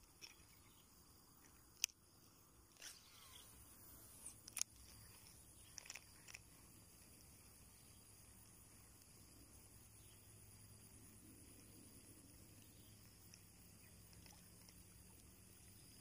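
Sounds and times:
fishing reel clicks: 0:04.2 - 0:06.5.

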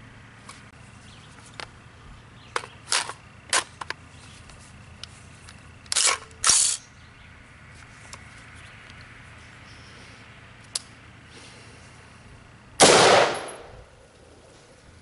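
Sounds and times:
rifle action metallic clacks: 0:12.8 - 0:13.7.

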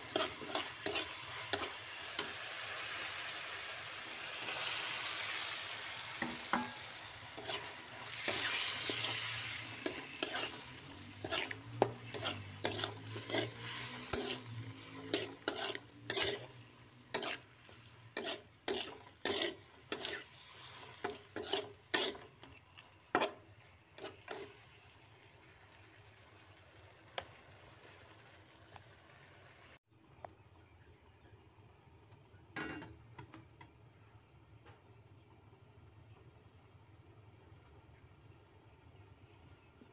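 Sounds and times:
spatula scraping and knocking wok: 0:00.0 - 0:24.8
prawns sizzling in oil: 0:00.0 - 0:29.8.

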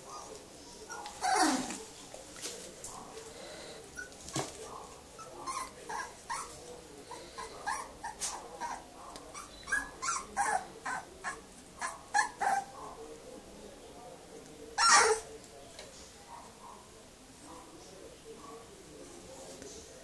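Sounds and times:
puppies yipping and squealing: 0:05.1 - 0:12.8, 0:14.8 - 0:15.3.

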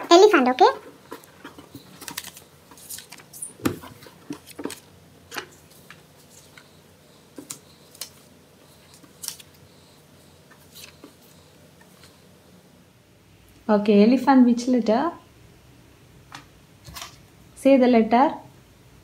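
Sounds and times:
paper cards shuffled on table: 0:01.1 - 0:12.2.

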